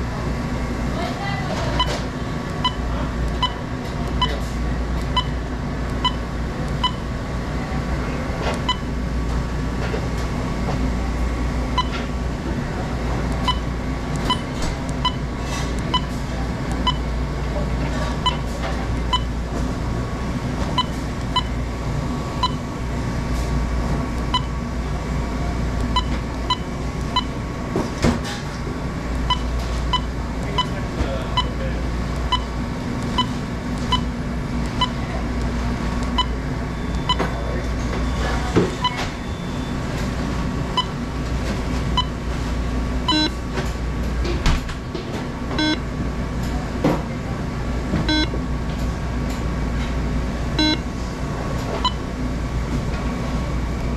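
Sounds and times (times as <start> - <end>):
steady low hum: 0.0 - 53.9
short high keypad beeps: 5.1 - 5.4, 43.1 - 43.4, 45.6 - 45.8, 48.1 - 48.3, 50.6 - 50.8.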